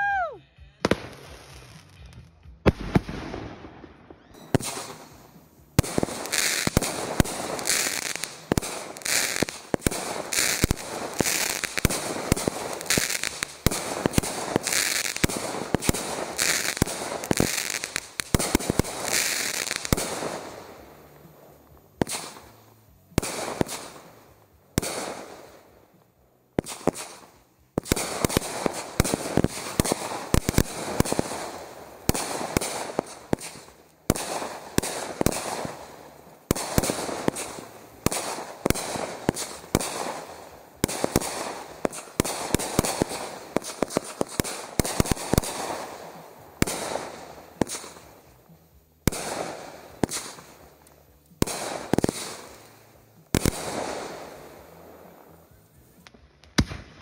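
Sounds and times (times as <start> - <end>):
firework shots banging: 4.4 - 20.6.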